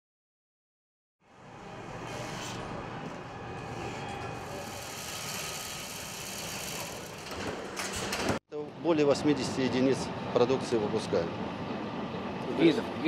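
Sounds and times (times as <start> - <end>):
machinery whirring: 1.4 - 8.4.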